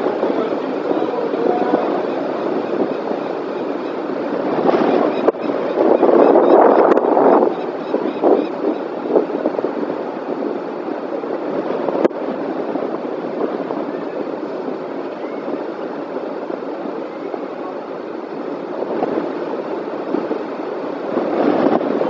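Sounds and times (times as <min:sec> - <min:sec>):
wind blowing over microphone: 0:00.0 - 0:22.0.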